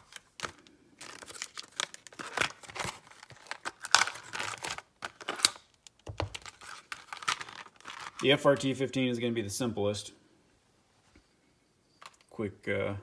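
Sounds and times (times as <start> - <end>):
plastic blister pack crackling: 0.0 - 8.8.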